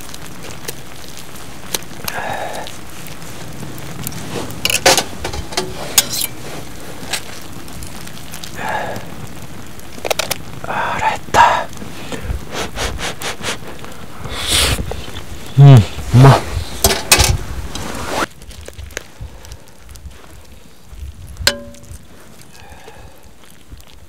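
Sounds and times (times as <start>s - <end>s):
chicken sizzling: 0.0s - 24.0s
fork scraping foil: 4.2s - 7.4s.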